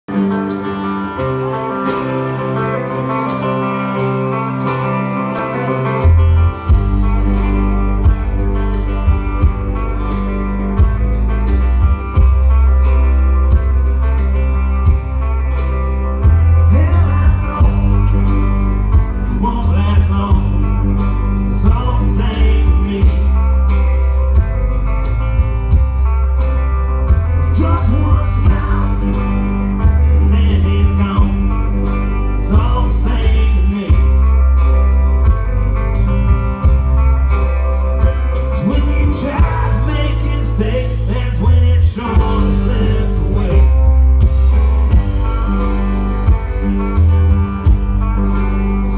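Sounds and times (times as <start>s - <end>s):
live rock band playing: 0.0s - 48.9s
man singing: 16.2s - 23.8s, 27.2s - 34.7s, 38.2s - 44.3s, 48.3s - 48.9s.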